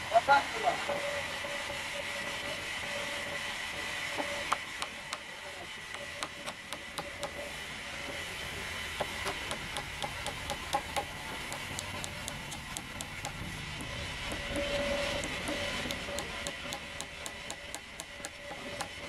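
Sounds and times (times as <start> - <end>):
sawmill machinery whining: 0.0 - 19.0
sharp clicks and taps: 9.2 - 19.0.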